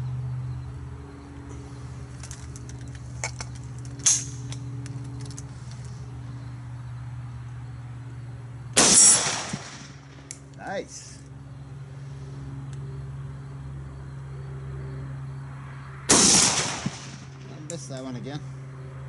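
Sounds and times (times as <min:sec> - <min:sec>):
steady low hum: 0:00.0 - 0:19.0
sharp rifle clack: 0:04.0 - 0:04.6.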